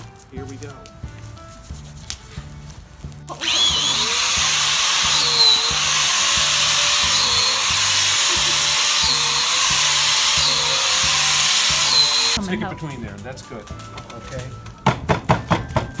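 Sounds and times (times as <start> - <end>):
background music with steady beat: 0.0 - 16.0
drill boring into wood: 3.3 - 12.4.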